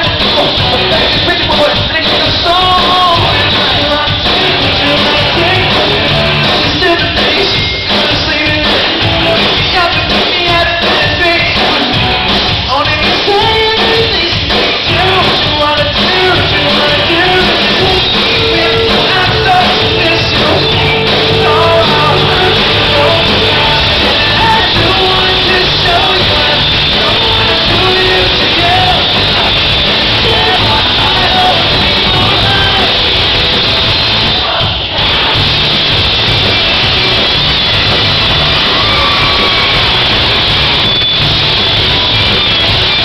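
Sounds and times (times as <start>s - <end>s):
lead vocal singing: 0.0s - 12.0s, 12.6s - 33.2s
live rock band playing: 0.0s - 43.0s.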